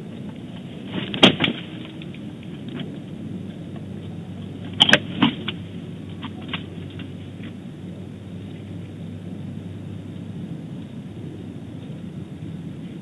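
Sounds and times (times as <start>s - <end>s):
nest-cam background noise: 0.0s - 13.0s
bird landing on stick nest: 0.8s - 2.9s, 4.7s - 5.6s.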